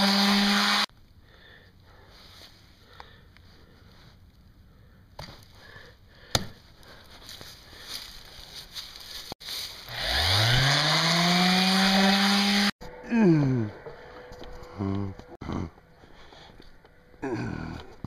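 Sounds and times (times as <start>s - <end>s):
orbital sander whining: 0.0s - 0.9s, 9.9s - 12.7s.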